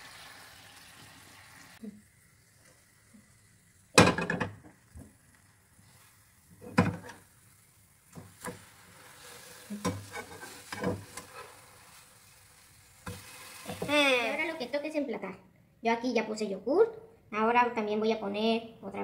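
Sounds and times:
pancakes sizzling in pan: 0.0 - 14.8
spatula knocking and scraping pan: 6.6 - 7.3, 8.1 - 11.6, 13.0 - 13.9.

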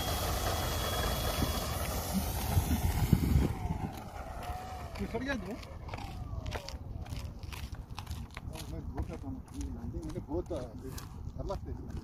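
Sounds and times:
model plane motor whirring: 0.0 - 8.7
wind rumbling on microphone: 1.4 - 12.0.

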